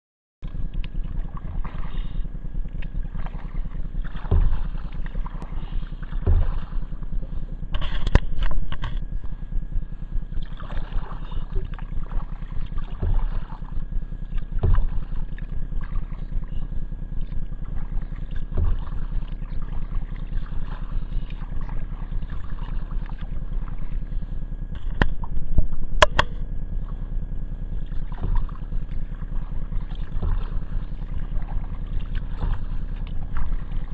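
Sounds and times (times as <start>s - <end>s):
paddle splashing in water: 0.5s - 9.4s, 10.4s - 16.6s, 17.2s - 27.1s, 27.8s - 33.9s
sharp knocks: 4.0s - 5.5s, 6.1s - 7.0s, 12.9s - 13.6s, 14.5s - 15.2s.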